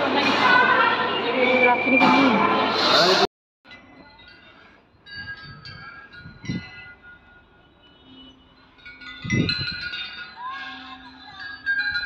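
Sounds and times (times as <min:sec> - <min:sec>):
high bell-like chimes: 0:03.7 - 0:12.0.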